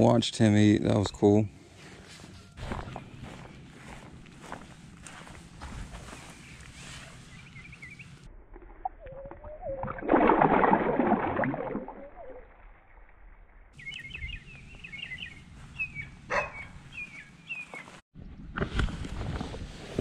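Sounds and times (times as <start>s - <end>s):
small birds chirping: 2.6s - 8.3s, 13.8s - 18.0s
fish splashing in water: 9.0s - 12.4s.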